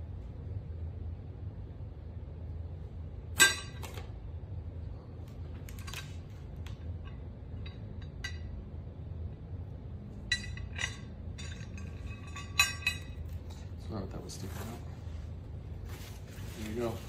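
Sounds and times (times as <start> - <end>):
metal lid clinking: 10.3 - 13.3.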